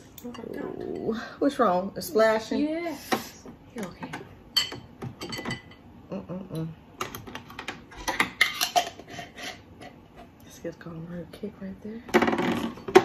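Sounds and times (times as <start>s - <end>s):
glass dishes and jars clinking: 4.6s - 5.8s.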